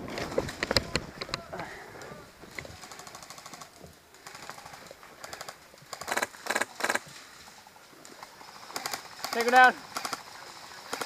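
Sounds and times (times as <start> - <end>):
airsoft rifle automatic bursts: 2.8 - 7.0, 8.4 - 11.0.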